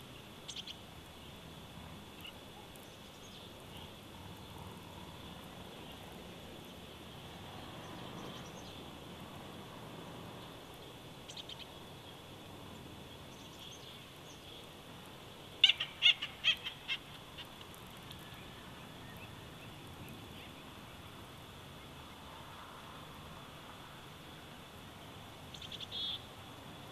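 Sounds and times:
outdoor hiss: 0.0 - 26.9
bird chirping: 0.1 - 1.4, 7.7 - 8.9, 10.4 - 12.2, 15.6 - 21.0, 25.5 - 26.3.

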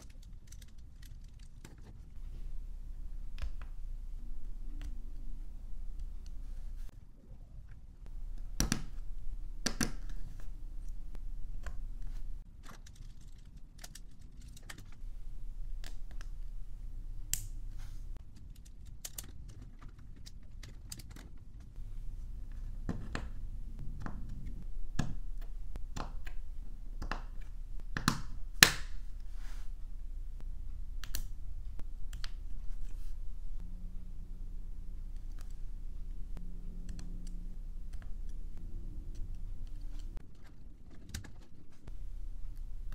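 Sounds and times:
plastic parts clicking together: 0.0 - 2.0, 12.6 - 15.0.

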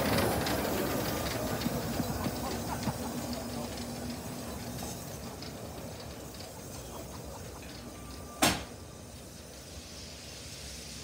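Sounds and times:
wheels clattering on rails: 0.0 - 9.6
steam train rumble: 0.0 - 11.0.

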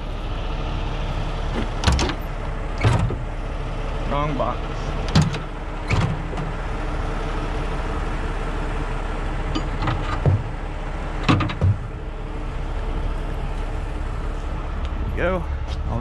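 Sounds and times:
steady background hum: 0.0 - 16.0
steel shackles clanking: 9.5 - 10.3.

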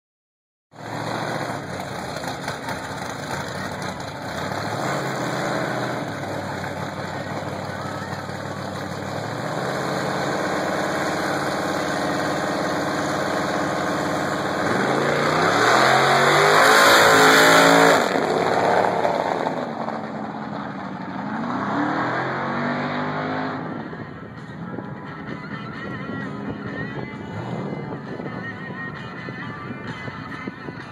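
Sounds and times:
car engine revving and accelerating: 0.8 - 7.7, 8.4 - 24.0, 27.2 - 28.1.

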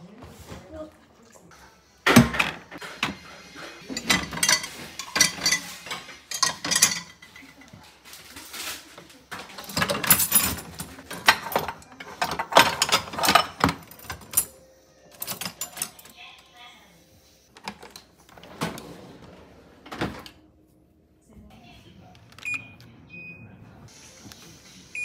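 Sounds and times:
dishes clattering in dishwasher racks: 2.1 - 16.1, 17.6 - 20.4.

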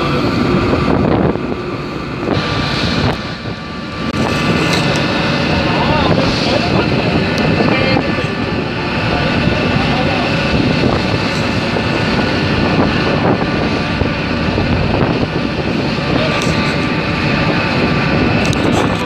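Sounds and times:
rushing sea water: 0.0 - 19.0
ship engine drone: 0.0 - 19.0
wind on microphone: 0.0 - 19.0.

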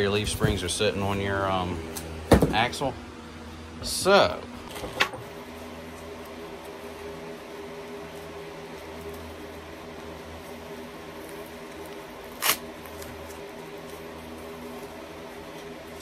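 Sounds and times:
steady low hum: 0.0 - 16.0
plastic wrapping crinkling: 5.9 - 16.0.

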